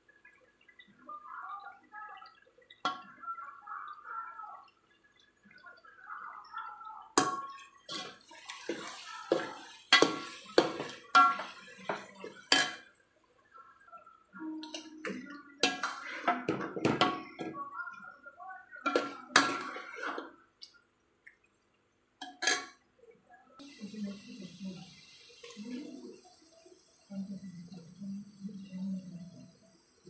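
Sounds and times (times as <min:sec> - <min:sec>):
metal spoon clanking on pot: 0:22.2 - 0:22.8.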